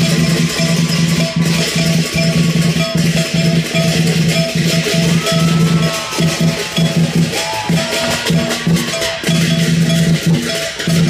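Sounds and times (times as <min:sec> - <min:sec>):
music over outdoor loudspeakers: 0:00.0 - 0:11.0.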